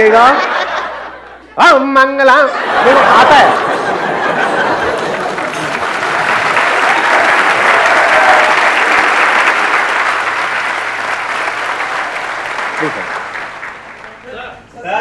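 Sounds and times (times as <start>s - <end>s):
audience applauding: 2.7s - 14.5s.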